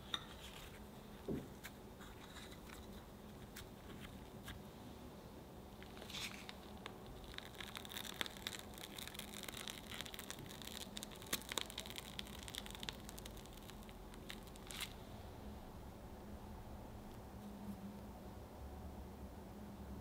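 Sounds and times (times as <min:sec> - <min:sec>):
piping bag crackling: 0:00.5 - 0:04.6, 0:05.7 - 0:15.0
cream squishing: 0:05.7 - 0:15.0.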